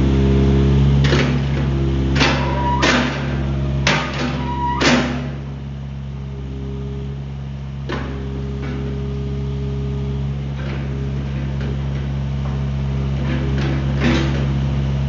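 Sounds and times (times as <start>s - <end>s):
diesel excavator engine running: 0.0s - 15.0s
hydraulic whine: 0.0s - 15.0s
metal bucket linkage clunks: 1.0s - 5.7s, 10.4s - 15.0s.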